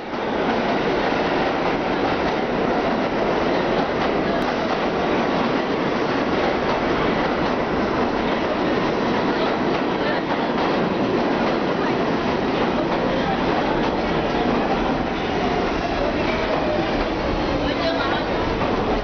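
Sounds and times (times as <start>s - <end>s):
subway train wheels rumbling: 0.0s - 19.0s.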